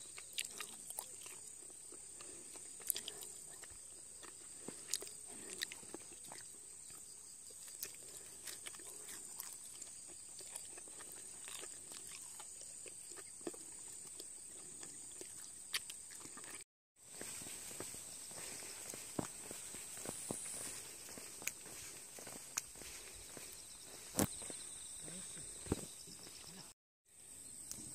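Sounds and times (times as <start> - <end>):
high-pitched insect trill: 17.1 - 27.9.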